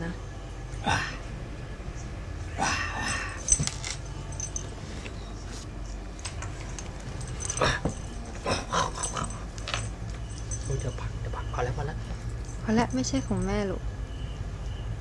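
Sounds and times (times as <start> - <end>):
small metal chain jingling: 3.1 - 4.9, 6.2 - 11.2, 12.2 - 13.7
cat scuffling with toy: 3.4 - 5.6.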